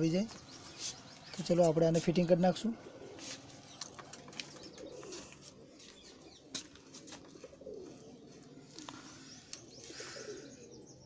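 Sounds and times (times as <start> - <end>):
pigeon cooing: 2.6 - 11.0.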